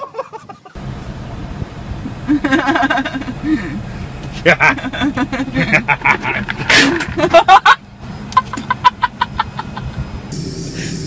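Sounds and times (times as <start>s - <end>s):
man laughing: 0.0s - 0.8s, 2.2s - 10.1s.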